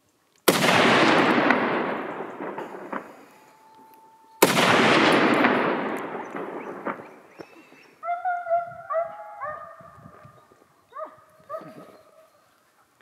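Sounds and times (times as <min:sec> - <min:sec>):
rifle shots with echo: 0:00.4 - 0:03.4, 0:04.4 - 0:07.4.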